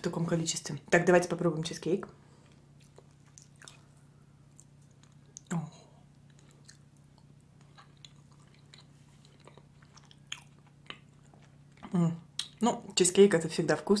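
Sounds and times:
soft chewing with mouth clicks: 2.3s - 13.0s.

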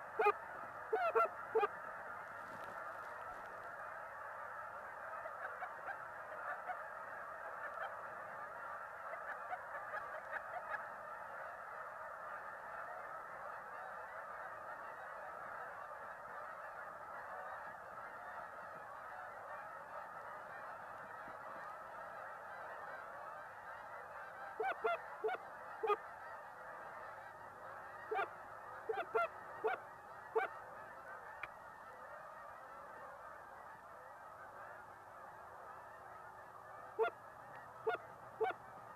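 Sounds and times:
loud single goose honks: 0.0s - 32.4s, 35.5s - 38.6s
flock of geese honking: 0.0s - 38.9s.

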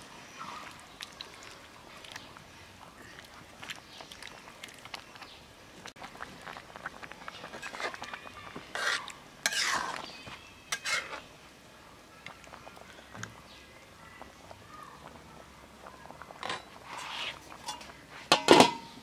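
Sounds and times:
metal spatula scraping pan: 8.7s - 11.3s, 16.4s - 18.8s.

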